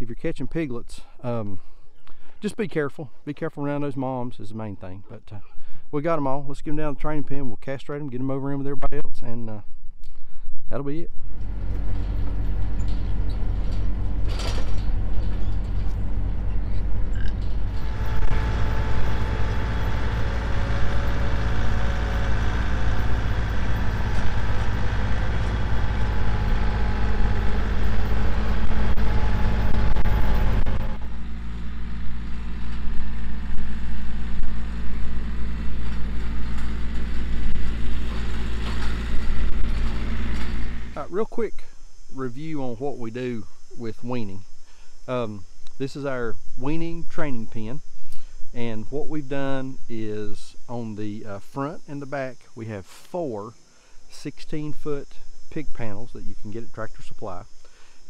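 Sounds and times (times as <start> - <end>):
tractor engine running: 11.2 - 41.1.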